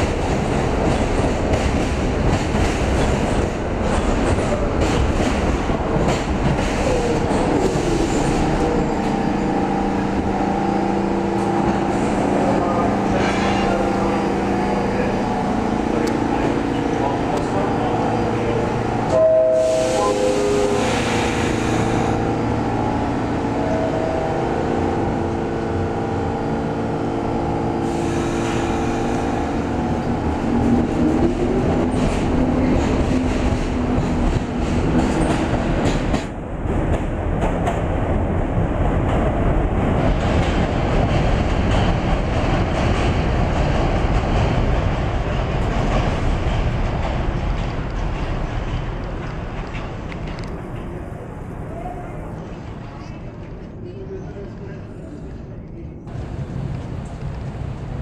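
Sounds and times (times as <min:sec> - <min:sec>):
wheels rumbling on rail: 0:00.0 - 0:58.0
door warning tones: 0:19.1 - 0:20.8
doors closing hiss: 0:19.6 - 0:22.1.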